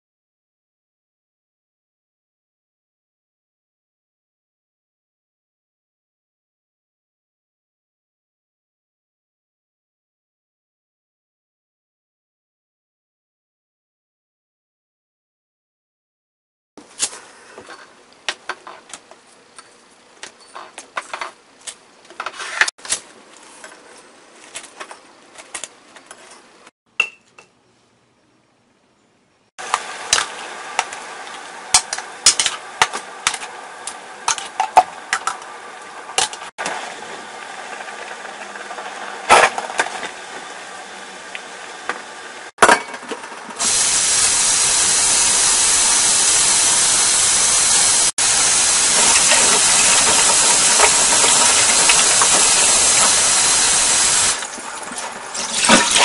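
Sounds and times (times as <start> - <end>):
water boiling in a pot: 43.6 - 56.0.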